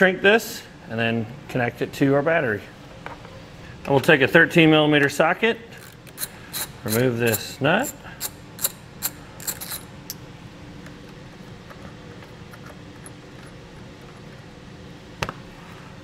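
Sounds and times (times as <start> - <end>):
faint steady hum: 0.0 - 16.0
ratchet wrench clicking: 5.8 - 9.9.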